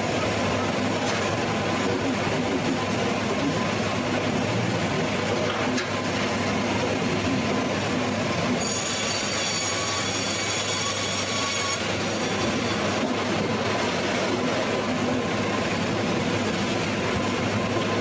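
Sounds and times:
sawmill machinery running: 0:00.0 - 0:18.0
saw whining into log: 0:08.6 - 0:13.0.

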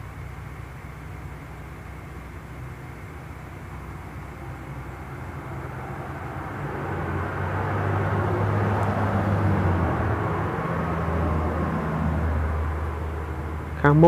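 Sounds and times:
vehicle engine hum with rushing noise: 0:00.0 - 0:14.0.

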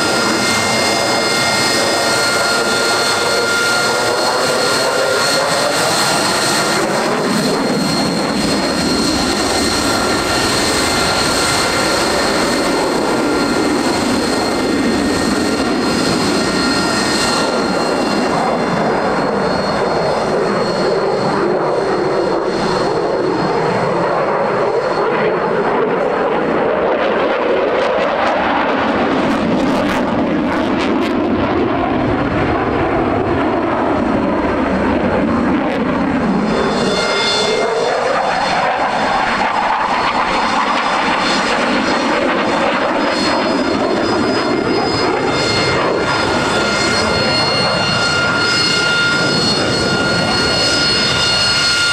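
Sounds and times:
jet engine running loud: 0:00.0 - 0:51.9
high whine: 0:28.9 - 0:51.9.

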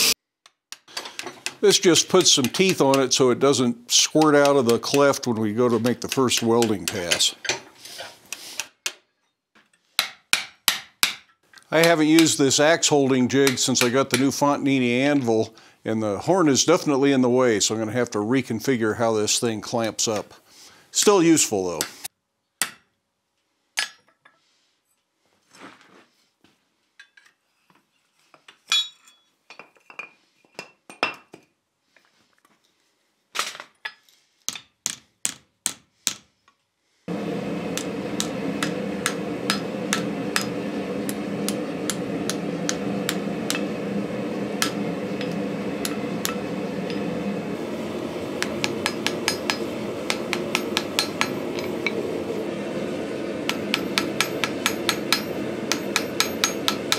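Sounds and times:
hammer clinking on steel: 0:28.7 - 0:29.2
heavy hammer blows: 0:37.1 - 0:56.9.

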